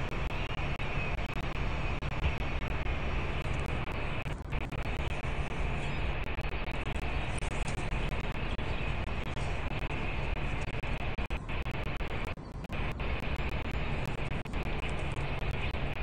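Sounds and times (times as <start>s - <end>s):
city background rumble and hiss: 0.0s - 16.0s
faint clicks: 1.2s - 16.0s.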